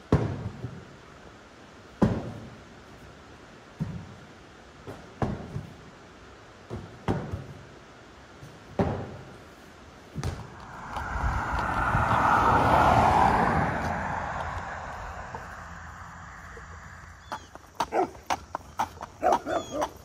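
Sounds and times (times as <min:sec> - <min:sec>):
rush of noise: 0:10.3 - 0:17.5.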